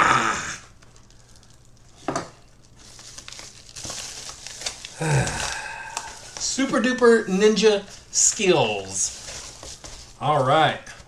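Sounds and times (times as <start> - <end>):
paper bag tearing and crinkling: 2.8 - 10.4.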